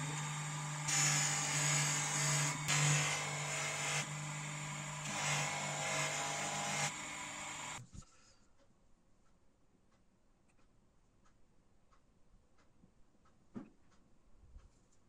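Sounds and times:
grinding machine motor hum: 0:00.0 - 0:07.8.

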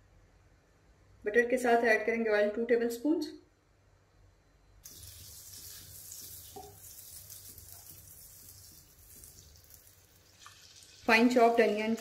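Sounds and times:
butter sizzling in hot oil: 0:04.8 - 0:12.0.

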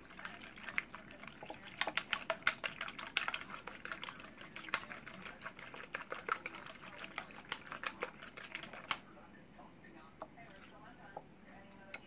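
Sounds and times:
eggs being beaten in a bowl: 0:00.0 - 0:09.1.

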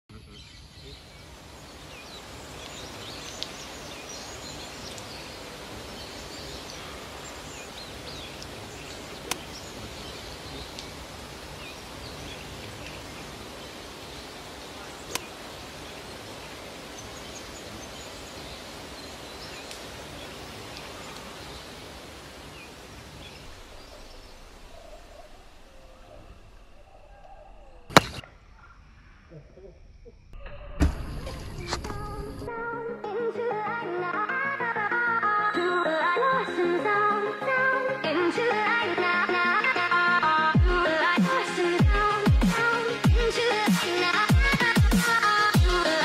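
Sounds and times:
steady outdoor noise haze: 0:00.1 - 0:30.4, 0:36.3 - 0:46.0
faint bird chirps: 0:00.1 - 0:32.5
sharp clicks: 0:09.3 - 0:09.6, 0:15.1 - 0:15.3, 0:27.2 - 0:28.4.

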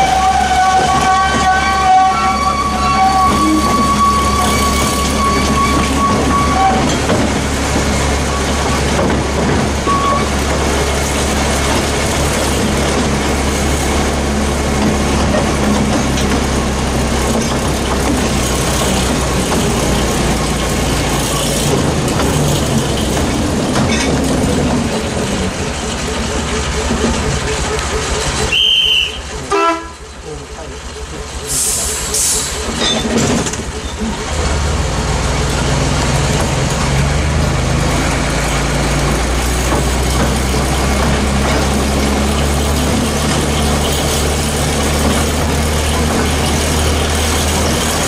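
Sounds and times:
high squeal: 0:00.0 - 0:07.0, 0:09.8 - 0:10.4
carriage rumbling on rails: 0:00.0 - 0:48.0
train engine drone: 0:00.0 - 0:48.0.

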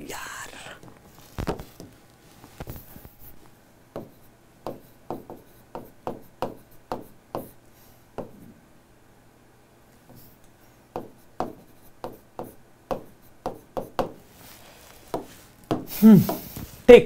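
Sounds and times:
pen tapping and scraping on screen: 0:00.8 - 0:02.0, 0:03.9 - 0:07.6, 0:08.2 - 0:08.5, 0:10.9 - 0:14.3, 0:15.0 - 0:16.5.

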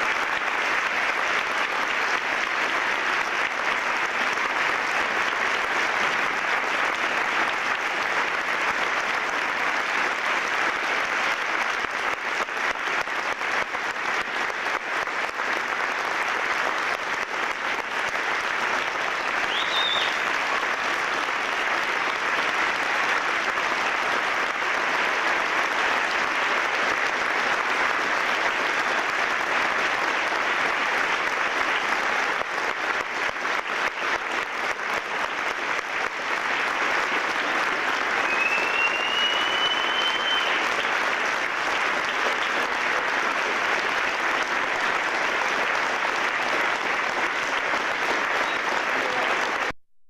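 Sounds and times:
audience applause: 0:00.0 - 0:49.8
high whistle: 0:19.5 - 0:20.2, 0:38.2 - 0:40.6.

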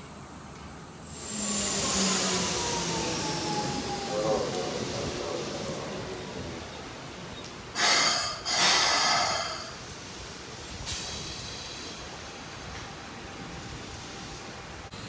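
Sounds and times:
compressed air hissing from train: 0:01.0 - 0:05.8, 0:07.7 - 0:15.0.

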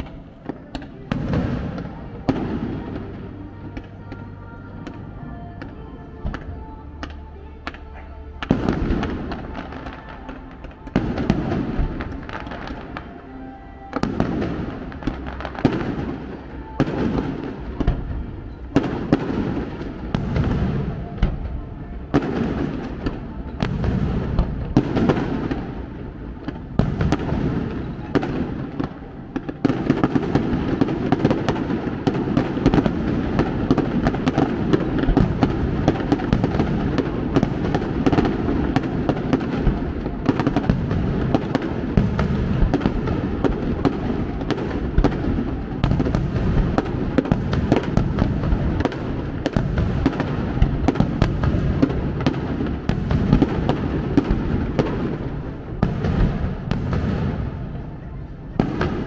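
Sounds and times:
fireworks crackle: 0:00.0 - 0:59.0.

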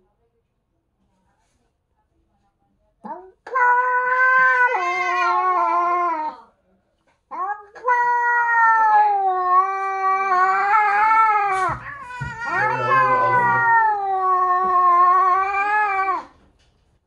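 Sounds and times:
cat yowling: 0:03.5 - 0:06.4, 0:07.3 - 0:16.4.

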